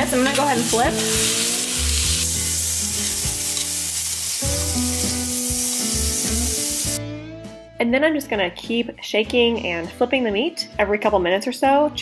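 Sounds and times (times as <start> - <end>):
steaks sizzling in a skillet: 0.0 - 7.0.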